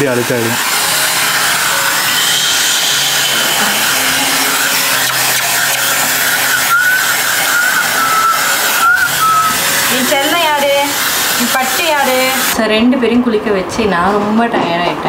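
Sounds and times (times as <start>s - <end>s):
hair dryer blowing: 0.0s - 12.6s.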